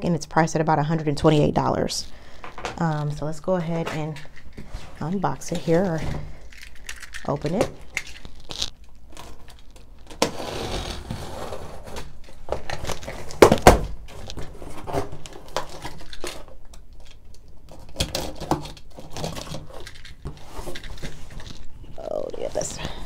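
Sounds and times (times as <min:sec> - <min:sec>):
cardboard rustling and scraping: 0:02.6 - 0:06.4, 0:07.6 - 0:16.6, 0:17.8 - 0:23.0.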